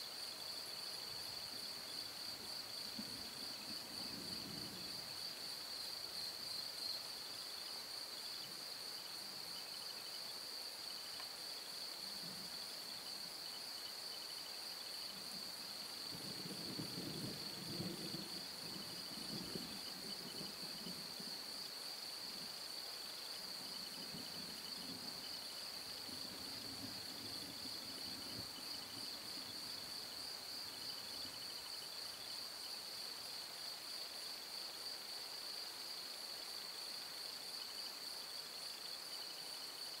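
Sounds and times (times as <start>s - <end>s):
crickets chirping: 0.0s - 40.0s
distant thunder rumbling: 16.1s - 21.3s.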